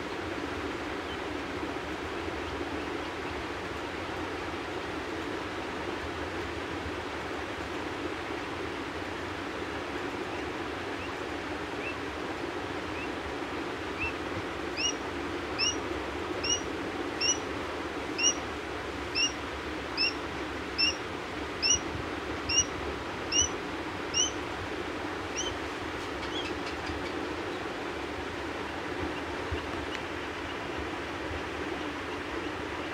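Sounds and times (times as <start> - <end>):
steady background hiss: 0.0 - 32.9
quail chick peeping: 14.8 - 15.0, 15.6 - 15.8, 16.4 - 17.4, 18.2 - 18.4, 19.1 - 19.4, 20.0 - 20.2, 20.8 - 21.0, 21.6 - 21.8, 22.5 - 22.7, 23.3 - 24.4, 25.3 - 27.7.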